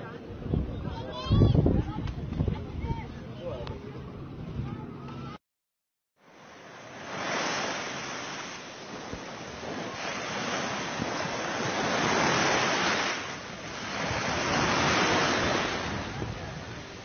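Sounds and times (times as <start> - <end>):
waves washing onto sandy beach: 6.2 - 17.0.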